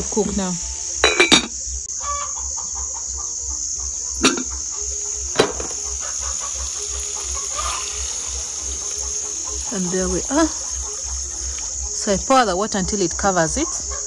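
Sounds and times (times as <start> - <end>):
insects chirring: 0.0 - 14.0
chickens clucking: 2.0 - 14.0
sharp knocks: 5.3 - 5.9.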